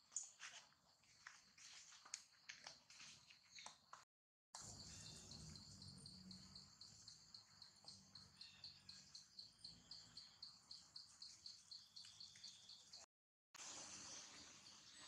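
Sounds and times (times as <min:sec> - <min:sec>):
insect chirping: 0:04.6 - 0:13.0.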